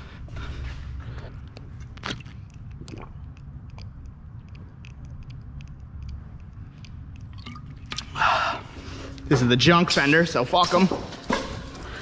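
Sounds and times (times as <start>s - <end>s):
steady low rumble: 0.0s - 10.6s.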